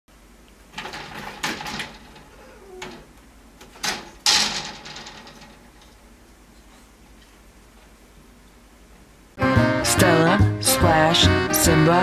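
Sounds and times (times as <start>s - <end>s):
cats hissing: 2.2s - 3.2s.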